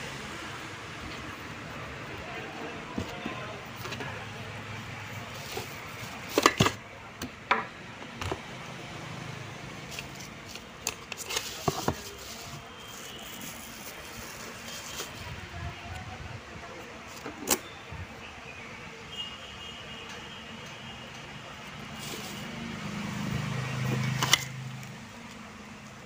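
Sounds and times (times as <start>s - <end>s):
cardboard and plastic being handled: 2.2s - 4.3s, 4.9s - 6.8s, 9.8s - 15.6s, 21.8s - 24.9s.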